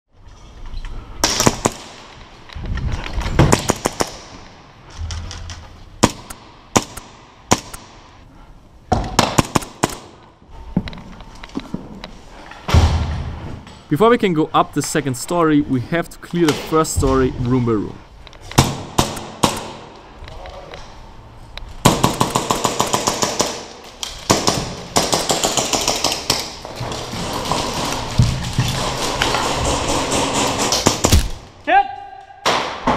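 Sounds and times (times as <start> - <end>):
airsoft pistol rapid firing: 6.0 - 8.0, 9.2 - 10.1, 18.6 - 19.8, 21.8 - 23.7.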